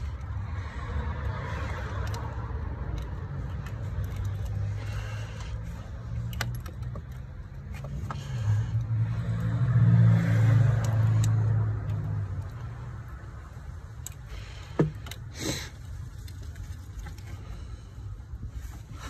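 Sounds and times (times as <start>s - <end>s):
vehicle engine humming: 0.0s - 19.0s.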